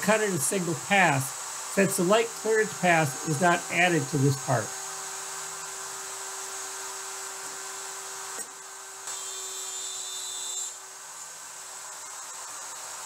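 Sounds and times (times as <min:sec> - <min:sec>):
router whining while cutting wood: 0:01.3 - 0:13.0.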